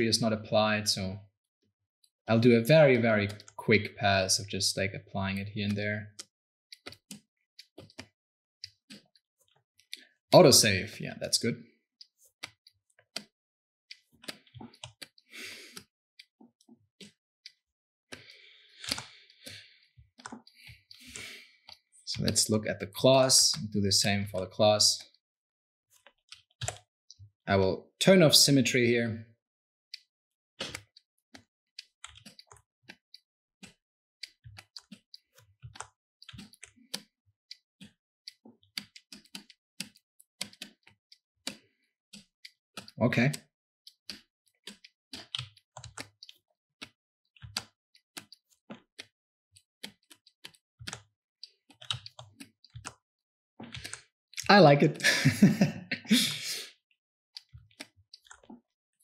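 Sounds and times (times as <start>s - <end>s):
computer keyboard and mouse clicking: 17.0s - 21.4s, 26.0s - 26.9s, 30.6s - 33.0s, 33.6s - 37.1s, 37.8s - 43.4s, 44.1s - 53.0s, 53.6s - 54.6s, 57.4s - 58.6s
computer mouse clicks: 17.0s - 22.4s, 30.6s - 31.0s, 49.8s - 53.0s, 53.6s - 54.5s.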